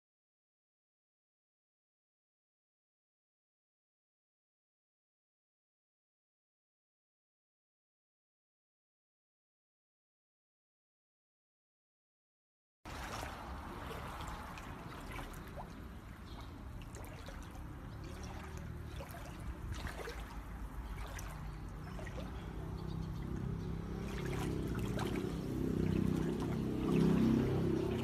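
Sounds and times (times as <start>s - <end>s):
floodwater rushing: 12.9s - 28.0s
small splashes and clicks: 12.9s - 28.0s.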